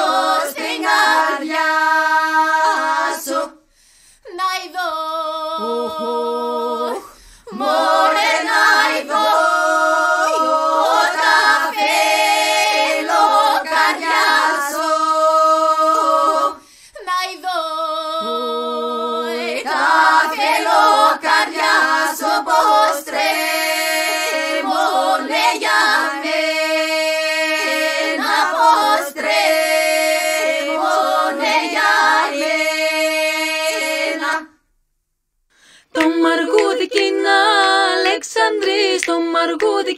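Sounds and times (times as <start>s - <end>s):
women's choir singing a cappella: 0.0s - 3.7s, 4.3s - 34.6s, 35.8s - 39.9s.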